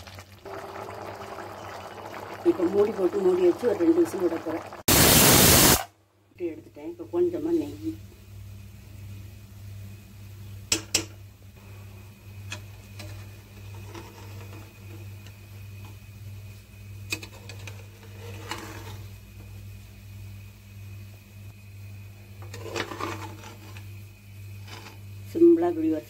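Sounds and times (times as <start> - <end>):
spatula scraping a metal pot: 13.0 - 15.0, 17.1 - 19.1, 22.4 - 23.9, 24.6 - 25.0.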